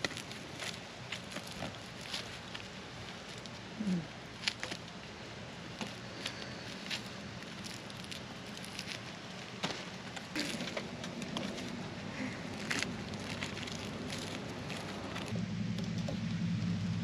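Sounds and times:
low steady hum: 0:00.0 - 0:17.0
knife cutting charred skin: 0:05.8 - 0:09.8.

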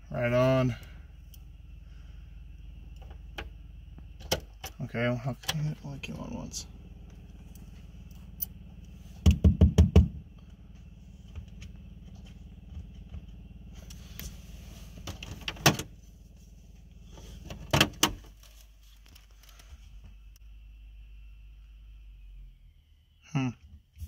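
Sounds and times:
truck engine hum: 0:00.0 - 0:24.0.

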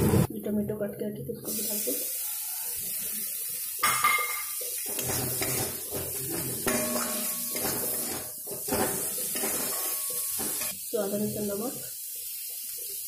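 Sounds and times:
frying hiss: 0:00.0 - 0:13.0
metal spatula scraping a pan: 0:03.9 - 0:10.8.

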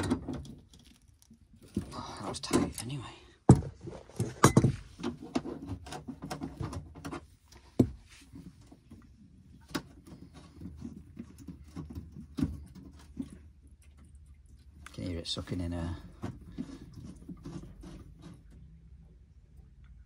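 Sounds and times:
small metal clicks and scrapes: 0:00.0 - 0:03.0.

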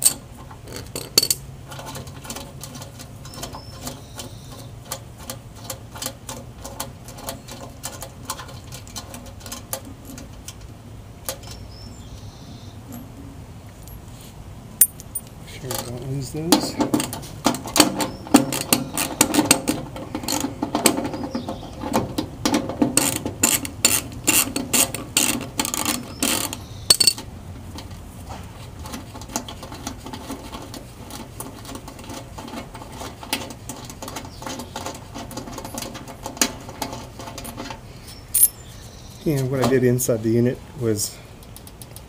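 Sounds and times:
metal handling sounds: 0:00.0 - 0:11.6, 0:12.9 - 0:40.0
socket ratchet clicking: 0:23.0 - 0:27.2.

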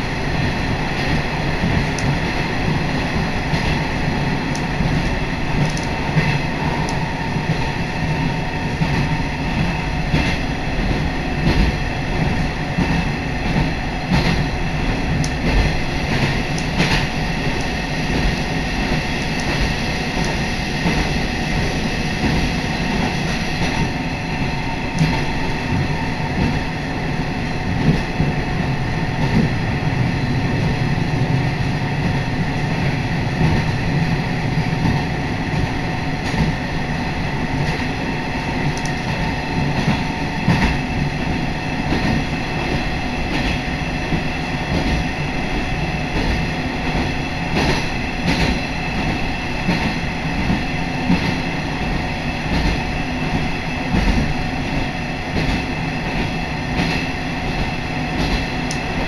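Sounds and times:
railcar engine and wheels rumbling: 0:00.0 - 0:59.0
track clicks: 0:04.4 - 0:07.1, 0:38.7 - 0:39.2.

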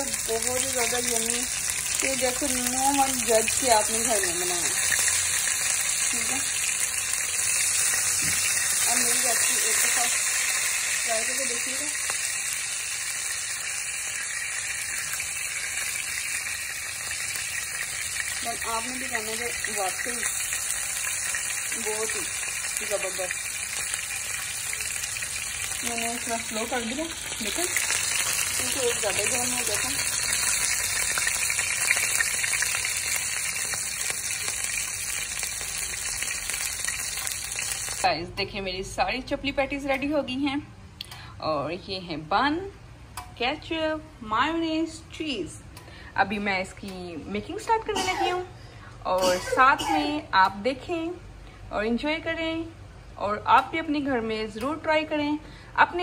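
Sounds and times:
hot oil sizzling: 0:00.0 - 0:38.2.

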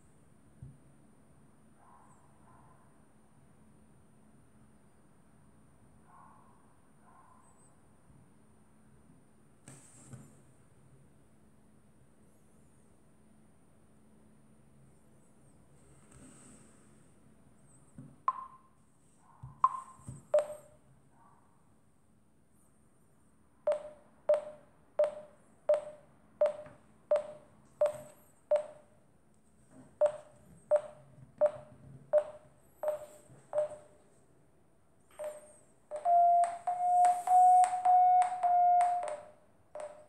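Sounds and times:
phone app beeping: 0:18.3 - 0:18.7, 0:19.6 - 0:20.7, 0:23.7 - 0:28.8, 0:30.0 - 0:33.9, 0:35.1 - 0:40.0.

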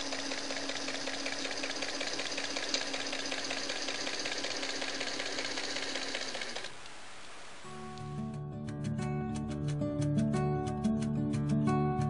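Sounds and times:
sewing machine gears clattering: 0:00.0 - 0:06.7
sewing machine motor hum: 0:00.0 - 0:06.8.

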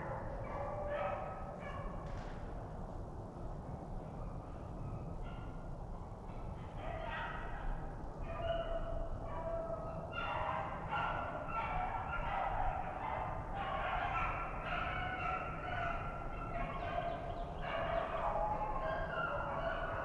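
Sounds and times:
hounds baying: 0:08.3 - 0:20.0.

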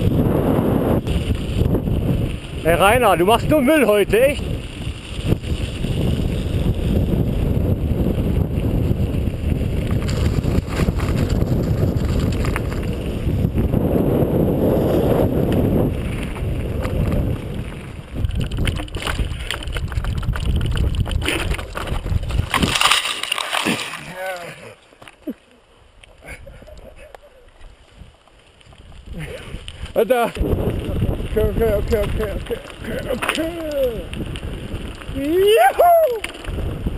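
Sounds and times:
wind buffeting microphone: 0:00.0 - 0:23.0, 0:26.2 - 0:36.9
bike rattling: 0:00.0 - 0:36.9
tyres crunching over gravel: 0:14.8 - 0:25.4, 0:27.5 - 0:36.9.

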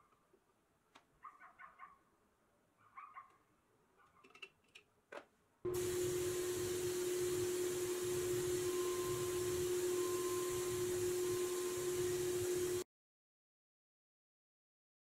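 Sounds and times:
spray gun loud hiss: 0:05.7 - 0:12.8
steady hum: 0:05.7 - 0:12.8.

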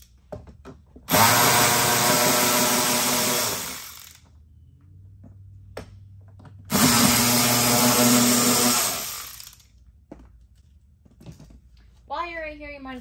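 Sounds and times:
electric ratchet whirring: 0:01.1 - 0:04.4, 0:06.7 - 0:09.8.

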